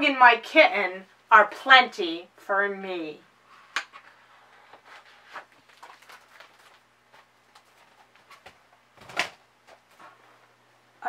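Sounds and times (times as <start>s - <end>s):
book rustling and clicking: 3.7s - 10.2s.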